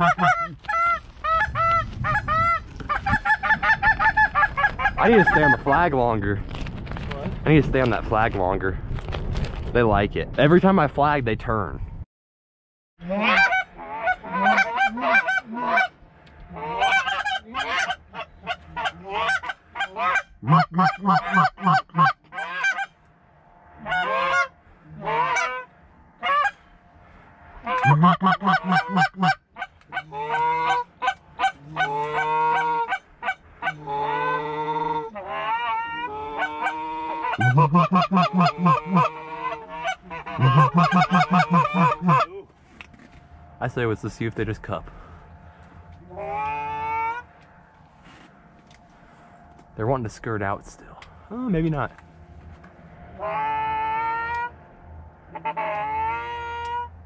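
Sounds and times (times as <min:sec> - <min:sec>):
goose honking and clucking: 0:00.0 - 0:05.9, 0:13.0 - 0:23.0, 0:23.8 - 0:26.7, 0:27.6 - 0:42.3, 0:46.0 - 0:47.4, 0:53.0 - 0:54.6, 0:55.3 - 0:57.0.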